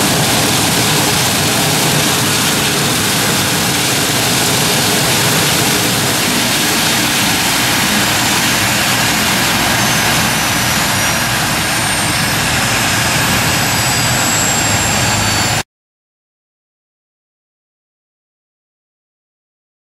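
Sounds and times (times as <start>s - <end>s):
gas turbine engines roaring: 0.0s - 15.6s.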